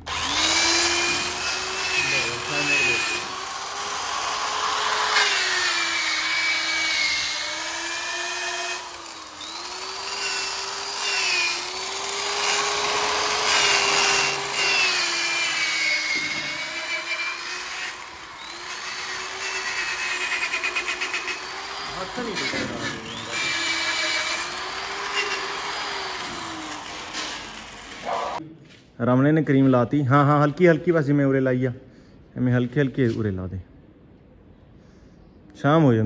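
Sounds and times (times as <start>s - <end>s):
electric polisher motor whining: 0.0s - 28.2s.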